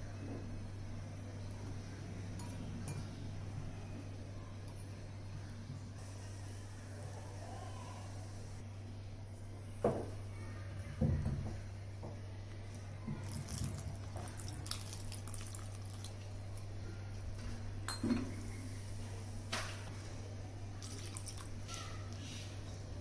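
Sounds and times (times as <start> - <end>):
steady low hum: 0.0 - 23.0
water pouring: 13.2 - 16.4, 20.8 - 21.6.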